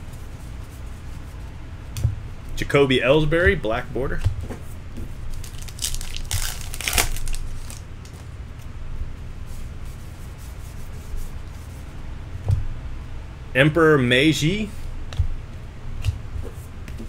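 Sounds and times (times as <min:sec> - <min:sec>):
card pack wrapper crinkling and tearing: 0:05.3 - 0:08.2
cards rustling in hands: 0:05.3 - 0:08.7.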